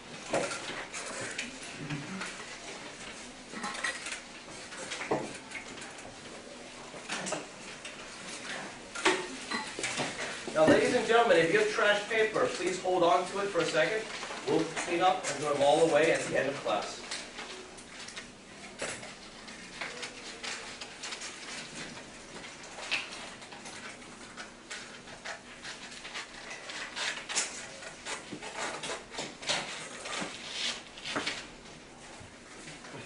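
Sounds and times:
paper rustling and crinkling: 9.8 - 31.7.

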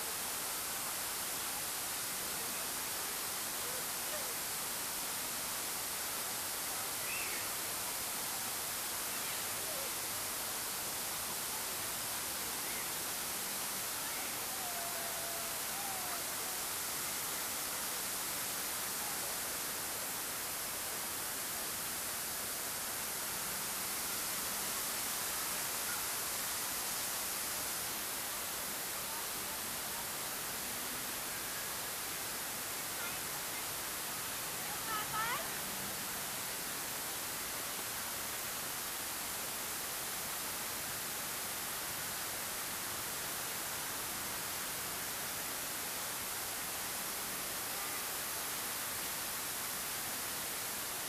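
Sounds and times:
steady hiss: 0.0 - 51.0.

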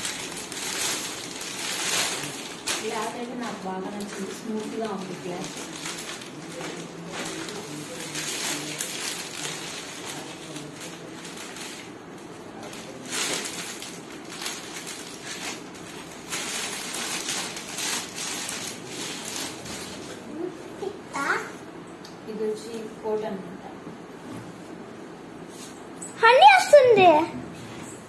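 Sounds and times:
fabric rustling: 0.0 - 12.0
plastic packaging crinkling: 0.0 - 20.2.

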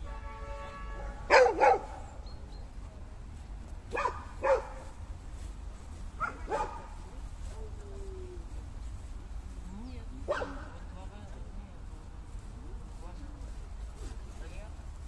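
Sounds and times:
dog barking: 1.3 - 2.1, 3.9 - 4.9, 6.2 - 6.9, 10.3 - 10.7.

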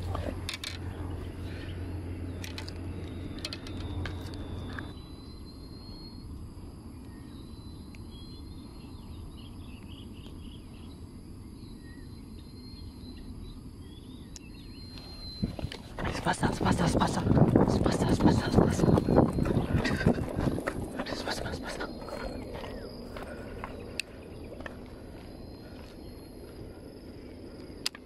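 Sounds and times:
bird chirps: 0.0 - 26.7
high insect tone: 0.0 - 28.0
low rumble: 15.3 - 27.8.

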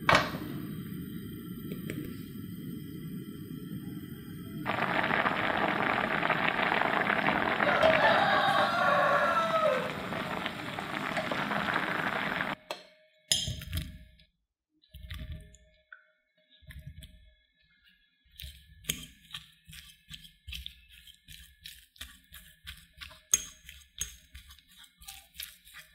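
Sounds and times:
water boiling in a pan: 0.0 - 12.6, 21.0 - 25.9.

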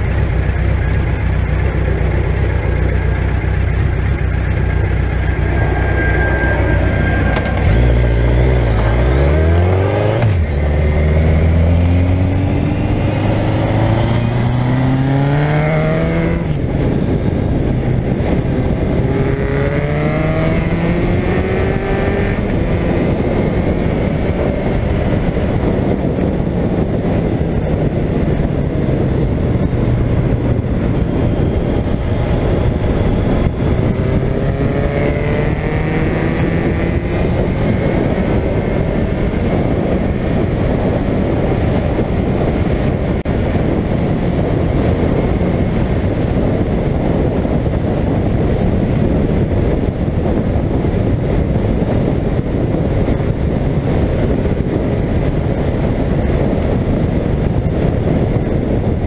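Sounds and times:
motorcycle engine running: 0.0 - 59.0
wind noise: 0.0 - 59.0.

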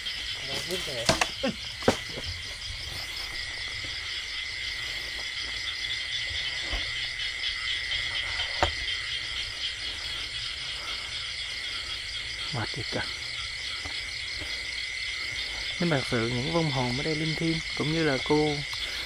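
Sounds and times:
night insects chirring: 0.0 - 19.0.

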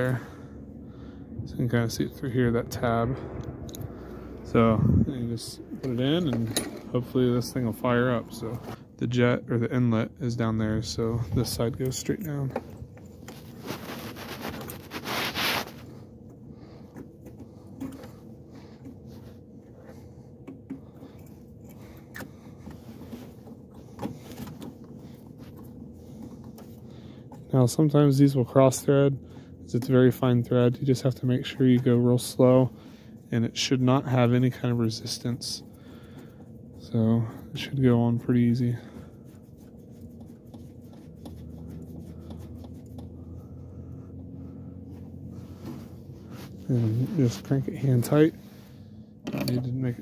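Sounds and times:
faint steady hum: 0.0 - 50.0
light clicks and scrapes: 11.3 - 16.0.

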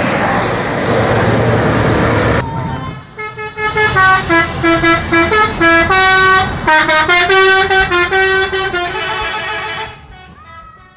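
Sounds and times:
bus musical horn playing a tune: 3.2 - 10.9.

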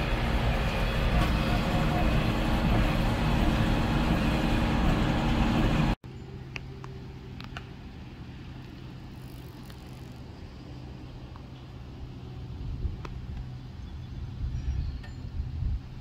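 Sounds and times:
loud farm machinery engine: 0.0 - 6.0.

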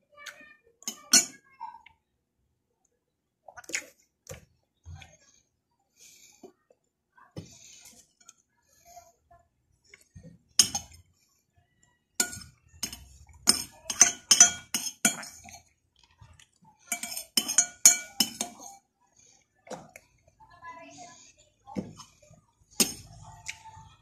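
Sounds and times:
cutlery clinking against bowl: 0.8 - 1.4, 10.6 - 11.0, 12.2 - 15.7, 16.9 - 18.8, 22.8 - 23.6.

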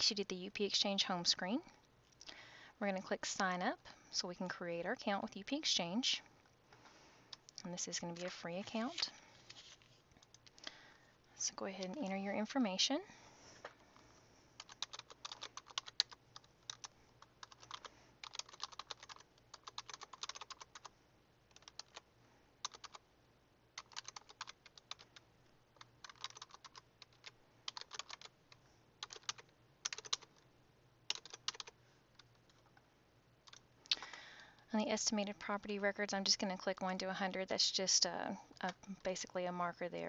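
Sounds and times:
computer keyboard typing: 10.2 - 10.6, 14.6 - 20.9, 21.5 - 22.0, 22.6 - 23.0, 23.8 - 25.2, 25.8 - 30.4, 31.1 - 32.8, 33.4 - 34.2.

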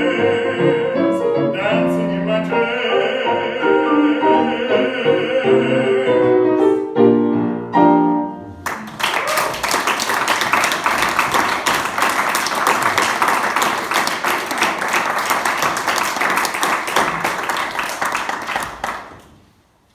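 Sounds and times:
person singing: 0.0 - 6.9
audience applause: 8.6 - 19.3.

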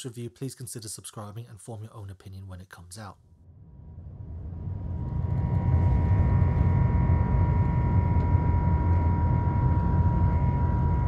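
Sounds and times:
jet engines low rumble: 3.4 - 11.0
high engine whine: 3.7 - 11.0.

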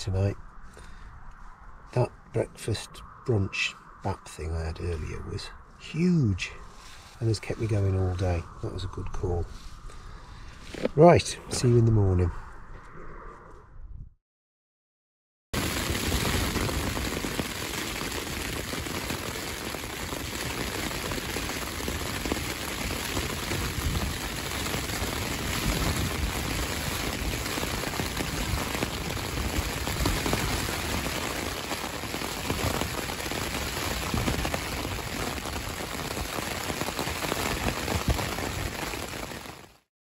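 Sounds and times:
wind buffeting tent fabric: 15.6 - 39.7
rain pattering on a tent: 15.6 - 39.9.

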